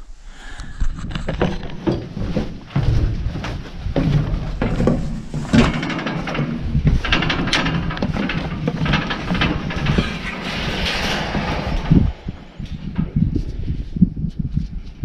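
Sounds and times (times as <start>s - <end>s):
footsteps on wooden stairs: 1.7s - 7.0s
wind buffeting microphone: 2.1s - 15.0s.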